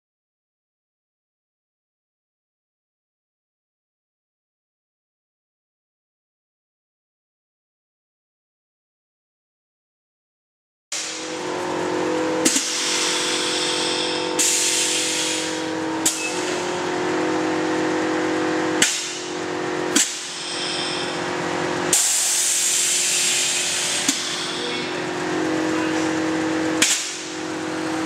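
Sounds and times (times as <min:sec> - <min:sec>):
engine hum: 0:11.0 - 0:28.0
air valves hissing: 0:12.4 - 0:16.8, 0:18.9 - 0:25.0.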